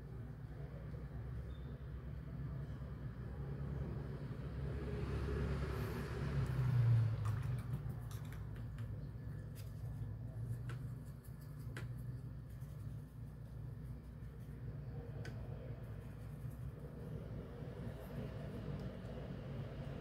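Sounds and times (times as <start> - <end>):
vehicle passing rumble: 2.9 - 10.4, 14.8 - 20.0.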